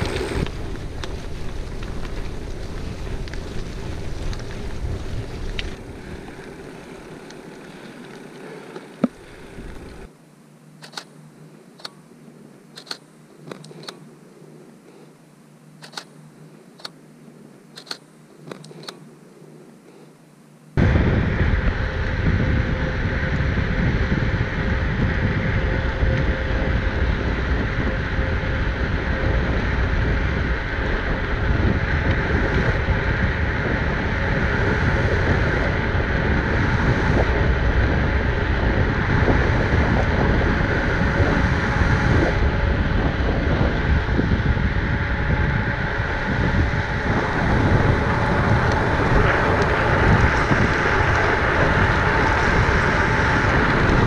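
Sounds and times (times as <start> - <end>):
wind buffeting microphone: 0.0 - 7.7, 20.8 - 54.0
bike tyres rolling on asphalt: 0.0 - 10.2, 20.8 - 54.0.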